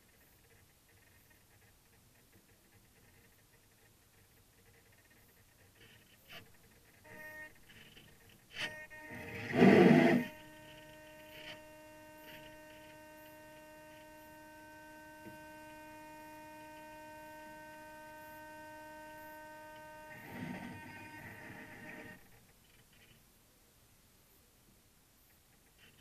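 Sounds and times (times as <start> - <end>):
high-pitched electrical hum: 2.9 - 23.2.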